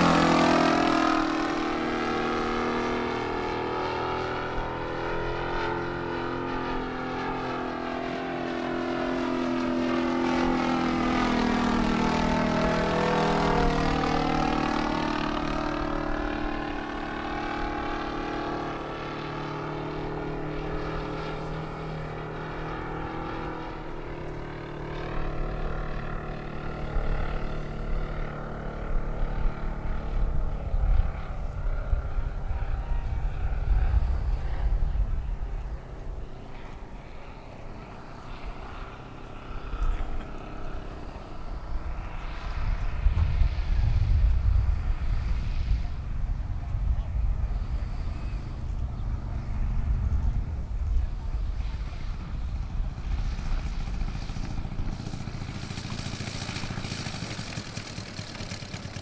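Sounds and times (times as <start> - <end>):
low gusty rumble: 0.0 - 59.0
model plane engine and propeller droning: 0.0 - 59.0.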